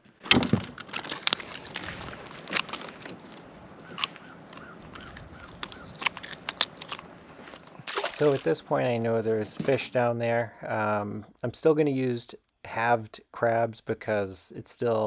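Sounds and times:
wind noise: 0.3 - 7.7
water washing: 0.3 - 9.9
clicks of handling fishing line: 0.5 - 7.8.

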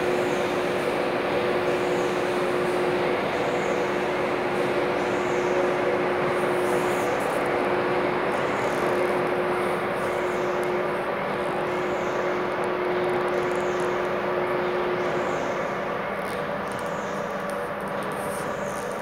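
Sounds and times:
factory machinery drone: 0.0 - 19.0.

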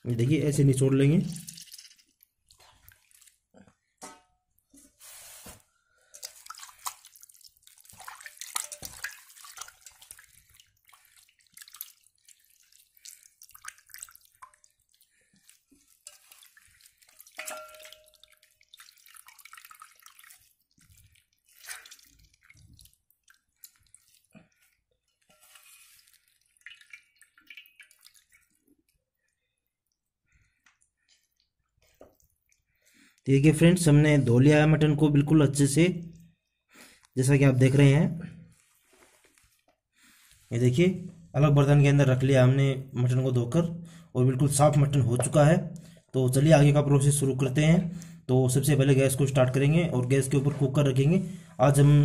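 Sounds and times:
water splashing in a bowl: 1.0 - 4.2, 6.0 - 29.5
steel bowl ringing: 17.4 - 18.2.

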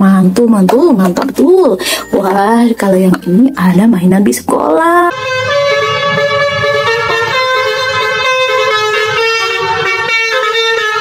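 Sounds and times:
multi-tone bus air horn tune: 5.1 - 11.0.

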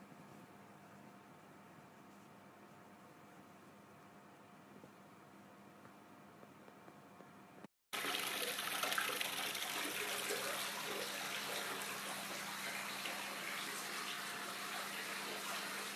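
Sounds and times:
water splashing into bathtub: 8.0 - 15.9.

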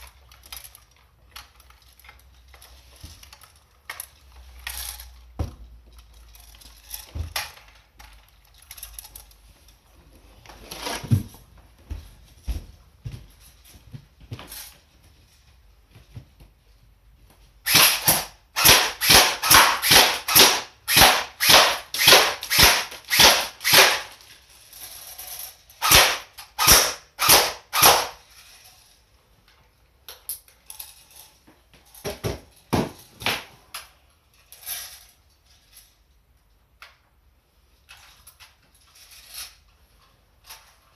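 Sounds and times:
rifles being handled: 0.0 - 11.6
airsoft rifle single shots: 25.8 - 28.2.

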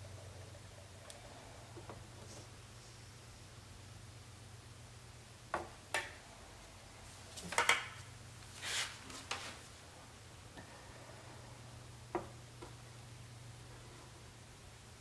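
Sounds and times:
faint low hum: 0.0 - 15.0
soft scrape: 8.5 - 9.7.

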